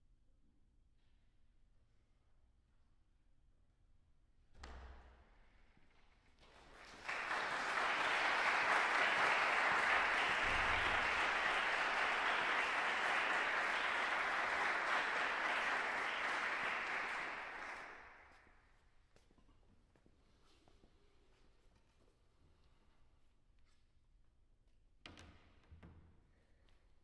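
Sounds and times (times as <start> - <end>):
audience applauding: 6.4 - 18.3.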